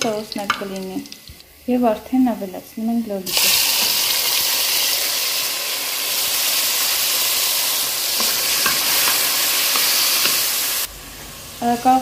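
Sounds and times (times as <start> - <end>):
tomatoes sizzling in a pan: 0.0 - 12.0
utensil tapping a pan: 8.2 - 10.5.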